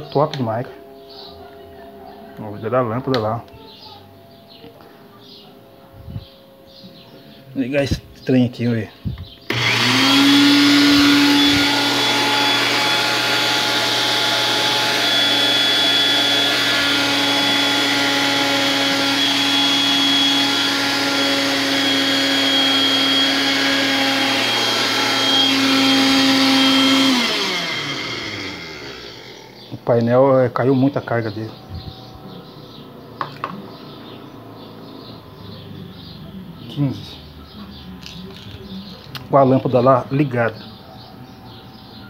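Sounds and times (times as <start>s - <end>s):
blender motor whine: 9.5s - 30.1s.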